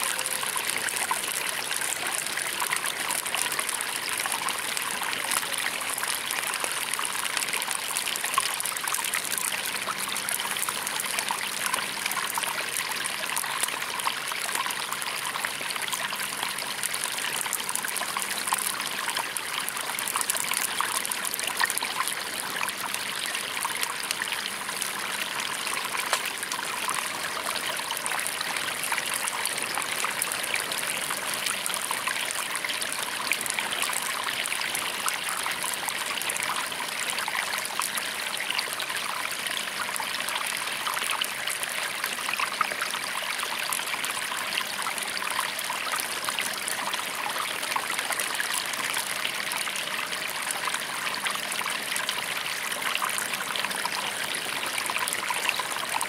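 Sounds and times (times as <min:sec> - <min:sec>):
stream flowing and trickling: 0:00.0 - 0:56.0
campfire crackling: 0:24.9 - 0:26.6.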